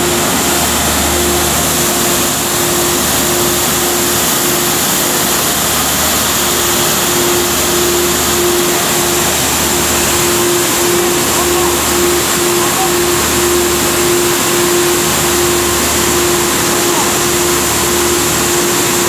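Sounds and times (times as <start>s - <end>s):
industrial vacuum cleaner running: 0.0s - 19.0s.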